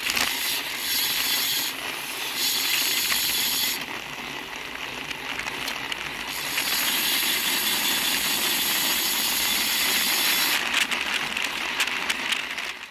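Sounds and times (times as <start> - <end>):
bicycle freehub ticking: 0.2 - 10.9.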